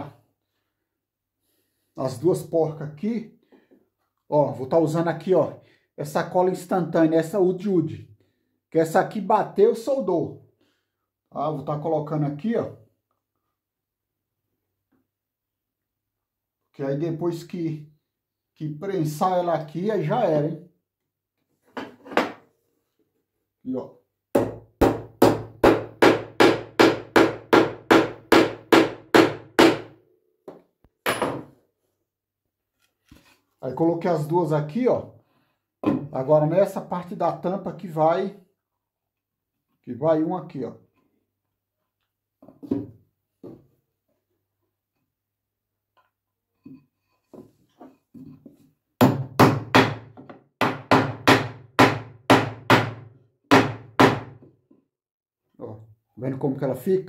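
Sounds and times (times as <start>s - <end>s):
hammer striking wood: 24.4s - 31.6s, 49.0s - 54.5s.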